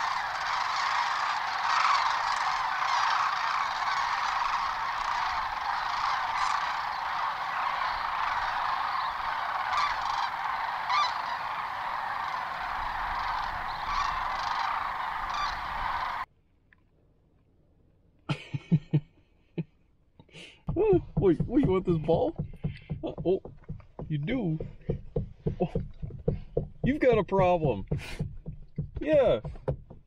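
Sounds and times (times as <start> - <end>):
flock of cranes calling: 0.0 - 16.3.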